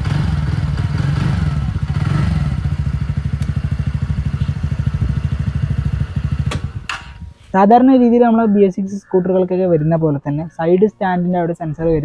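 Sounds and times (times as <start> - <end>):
scooter engine revving: 0.0 - 7.3.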